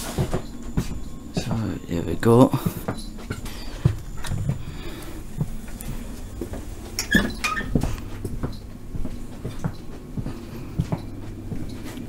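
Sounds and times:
footsteps: 0.0s - 12.0s
steady low hum: 0.0s - 12.0s
brief squeak: 7.0s - 7.7s.

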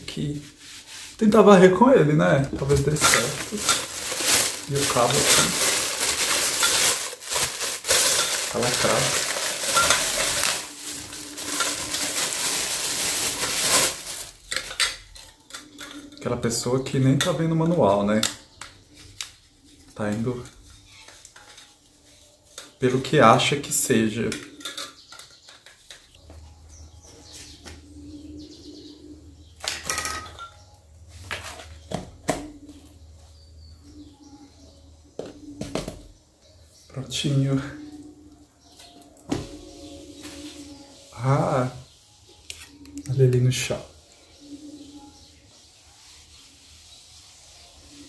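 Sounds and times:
plastic rustling: 2.3s - 15.3s
plastic wrapping crinkling: 2.6s - 14.8s.

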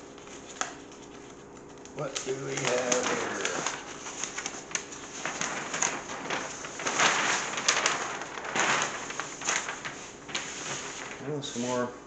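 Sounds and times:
paper sheets rustling: 0.0s - 11.9s.

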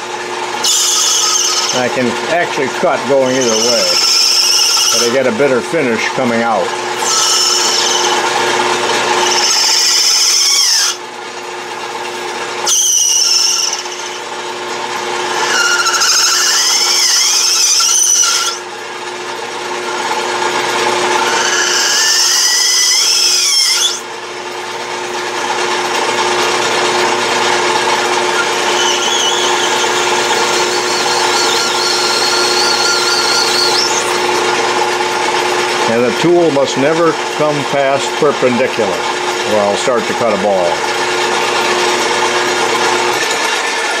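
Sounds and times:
lathe running hum: 0.0s - 44.0s
tool scraping cut with squeal: 0.6s - 5.5s, 6.9s - 11.0s, 12.6s - 14.4s, 15.2s - 18.8s, 20.8s - 24.1s, 27.5s - 34.6s, 41.8s - 44.0s.

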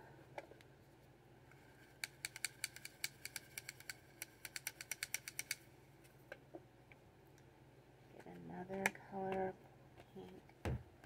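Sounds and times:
brush clicking on plastic pot: 2.0s - 5.6s.

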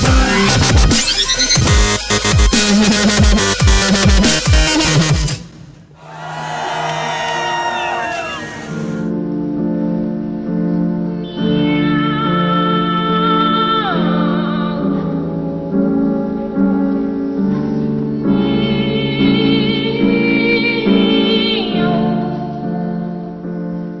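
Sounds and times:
music with sustained chords: 6.7s - 24.0s.

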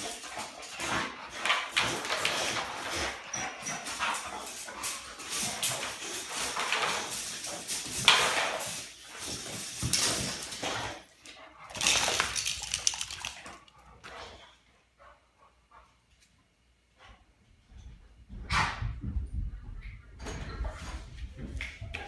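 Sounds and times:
scraping and bumps on floor: 0.0s - 11.0s.

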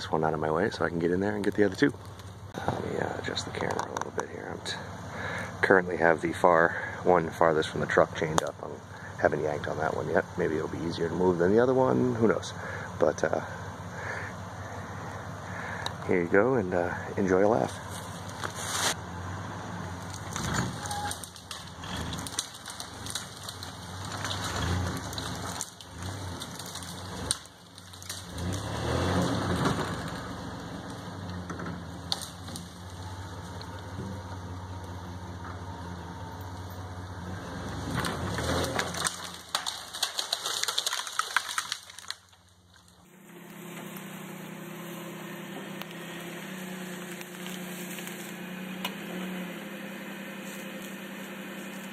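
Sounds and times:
branches crackling and snapping: 0.0s - 16.2s, 16.8s - 51.9s
truck engine running under load: 0.0s - 40.7s
truck engine idling: 0.0s - 51.9s.

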